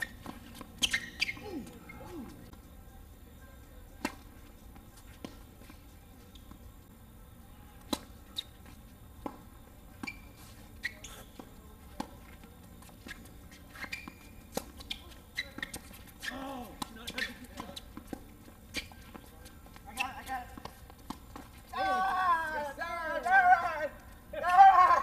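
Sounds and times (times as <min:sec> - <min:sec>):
shoes squeaking on court: 0:00.0 - 0:25.0
tennis ball bouncing: 0:07.8 - 0:12.2, 0:13.1 - 0:22.6.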